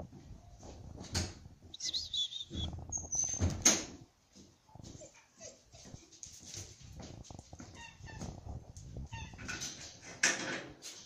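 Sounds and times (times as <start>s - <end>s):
high chirping animal calls: 1.7s - 3.4s.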